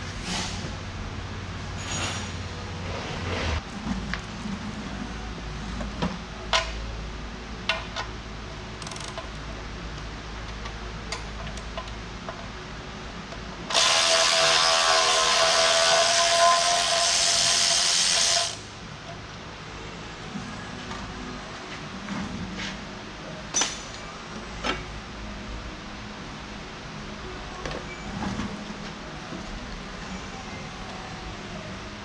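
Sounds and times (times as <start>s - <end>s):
handheld power tool running: 13.7s - 18.6s.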